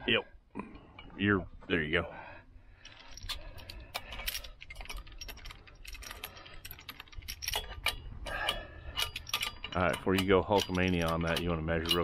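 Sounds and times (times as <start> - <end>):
hardware rattling against metal: 2.8 - 12.0
wrench clicking on metal: 2.9 - 12.0.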